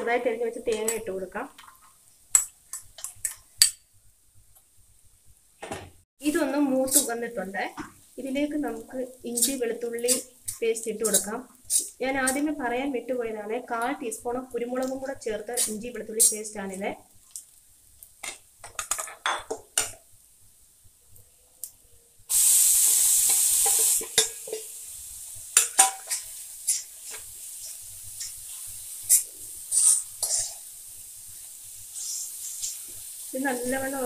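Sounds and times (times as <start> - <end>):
frying sizzle: 0.0 - 34.0
paste sizzling in hot oil: 0.2 - 3.9, 6.2 - 19.0, 19.6 - 34.0
spoon stirring and clicking on pan: 0.6 - 3.9, 18.2 - 20.0, 23.3 - 24.7, 25.5 - 30.6.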